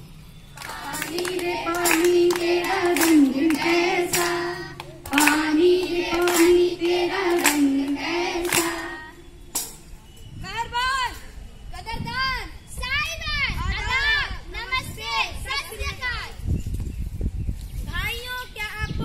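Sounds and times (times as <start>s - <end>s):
hands clapping: 0.6s - 9.0s
children singing in unison: 0.6s - 9.4s.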